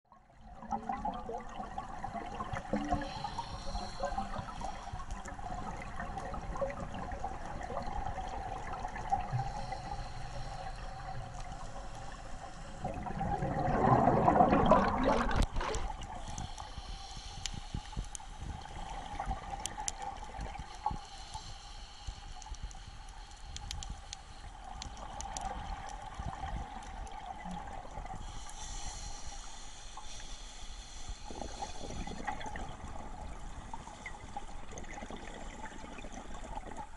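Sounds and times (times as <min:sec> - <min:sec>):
rush of gurgling bubbles: 0:00.2 - 0:16.8, 0:18.4 - 0:20.8, 0:24.6 - 0:28.4, 0:31.2 - 0:36.9
underwater bubbling hiss: 0:00.4 - 0:36.9
small clicks: 0:22.3 - 0:26.0.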